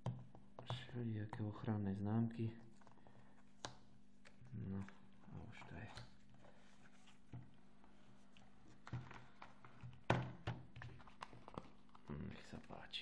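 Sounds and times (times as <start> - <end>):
case handling taps and thunks: 8.8 - 11.6.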